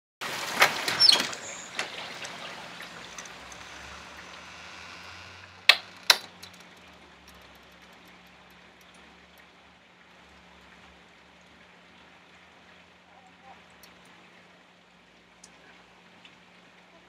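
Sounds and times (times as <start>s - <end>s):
heavy rain on wooden deck: 0.2s - 12.9s
sharp clicks: 1.2s - 9.4s.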